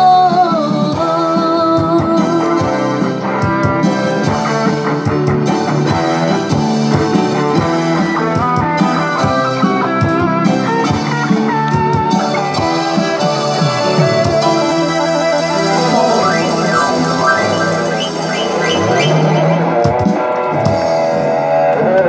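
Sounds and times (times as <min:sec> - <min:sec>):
electric guitar: 0:09.6 - 0:22.0
electronic keyboard: 0:13.6 - 0:20.4.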